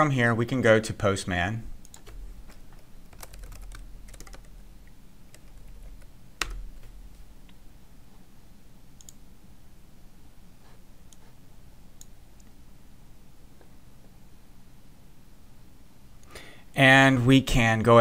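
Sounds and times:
keyboard typing: 1.8s - 4.7s, 5.3s - 7.0s
faint clicks: 9.0s - 9.2s.

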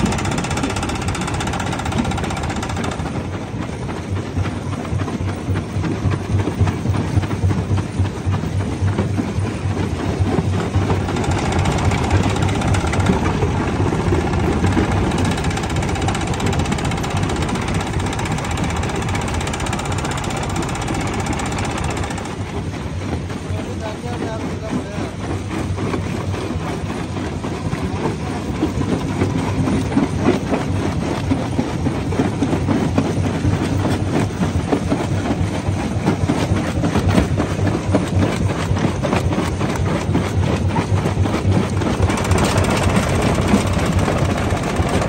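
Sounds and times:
rock crusher humming: 0.0s - 3.9s, 10.3s - 25.1s, 37.2s - 45.0s.

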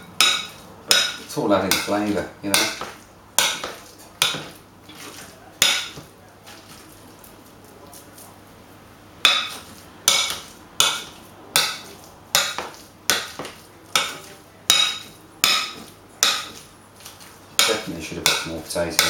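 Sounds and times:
fork knocking glass bowl: 9.3s - 16.6s, 17.6s - 19.0s.

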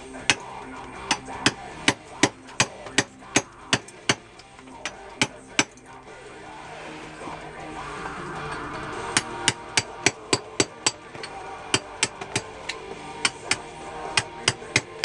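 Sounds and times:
hammer striking chisel on stone: 0.2s - 5.8s, 8.6s - 15.0s.

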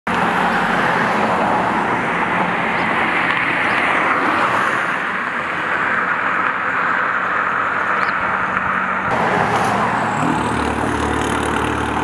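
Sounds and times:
car driving past: 9.1s - 12.0s.

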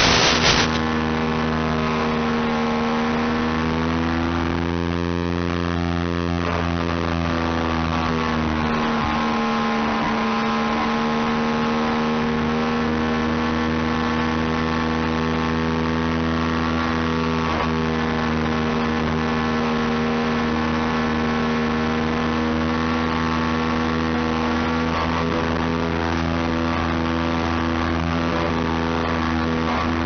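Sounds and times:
rush of air: 0.0s - 0.8s
electric motor and propeller whine: 0.0s - 30.0s.

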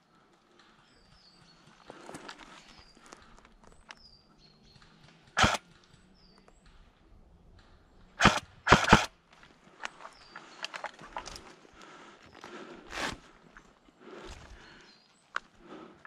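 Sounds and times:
rifle clacks: 5.3s - 6.0s, 8.2s - 9.1s
airsoft rifle shot: 5.4s - 5.6s, 8.2s - 9.1s.

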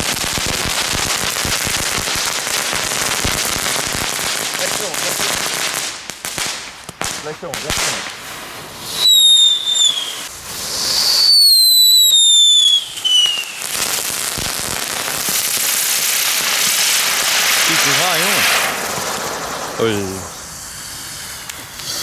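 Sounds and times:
hiss of sparks: 0.0s - 6.6s, 7.2s - 22.0s
firework crackles: 0.0s - 22.0s
falling firework whistles: 7.9s - 22.0s.

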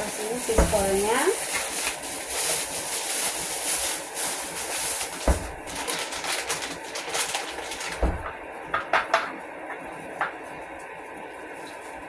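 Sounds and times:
plastic bag crinkling: 0.0s - 8.3s
dull thump: 5.3s - 5.6s.

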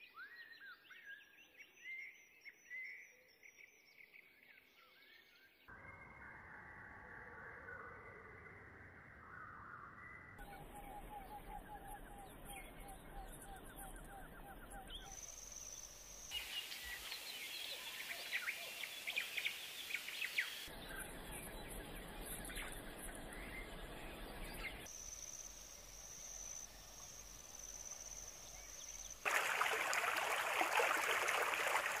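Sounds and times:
bird chirps: 9.2s - 30.3s.

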